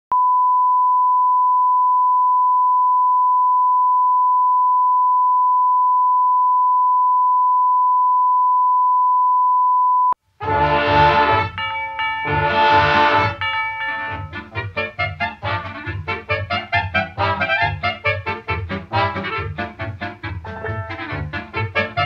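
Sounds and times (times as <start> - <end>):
sine test tone: 0.1 - 10.2.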